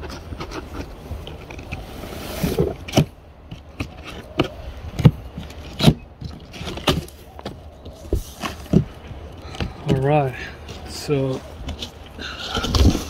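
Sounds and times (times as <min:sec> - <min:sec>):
cardboard box scraping on grass: 0:00.2 - 0:03.1
knocks and thumps on cardboard: 0:06.2 - 0:10.0.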